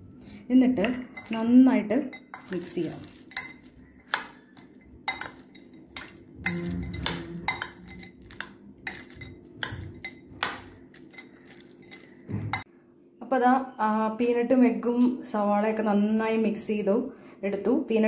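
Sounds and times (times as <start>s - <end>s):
spoon clinking against glass bowl: 1.0s - 12.6s
spoon scraping bowl: 1.1s - 12.6s.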